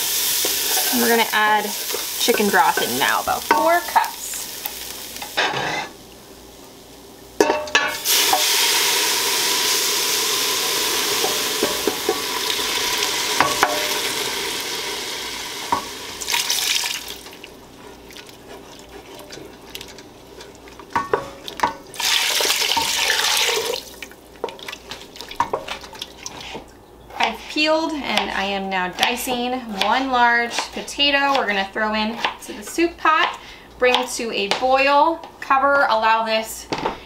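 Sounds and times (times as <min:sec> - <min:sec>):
broth pouring into a pot: 0:08.0 - 0:11.6, 0:12.2 - 0:18.4, 0:21.9 - 0:24.2
wooden spoon stirring in pot: 0:15.7 - 0:34.7.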